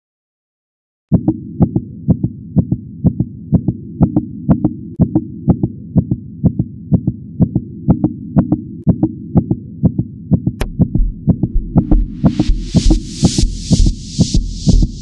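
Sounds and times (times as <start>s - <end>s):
heartbeat-style thumps: 1.1s - 15.0s
deep bass pulse: 10.6s - 15.0s.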